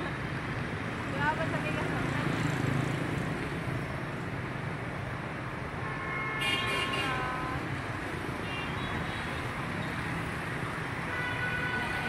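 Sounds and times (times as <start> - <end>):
motorbike traffic passing: 0.0 - 12.0
vehicle horn: 5.8 - 7.2, 11.1 - 12.0.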